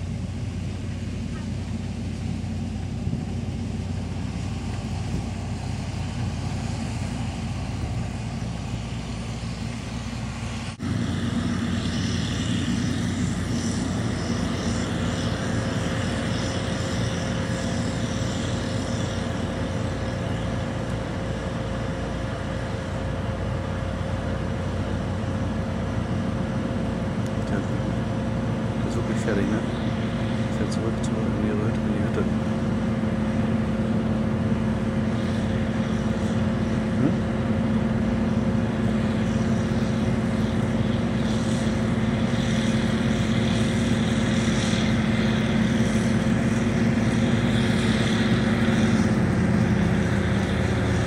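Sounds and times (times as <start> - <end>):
combine harvester engine drone: 0.0 - 51.0
steady whine: 0.0 - 51.0.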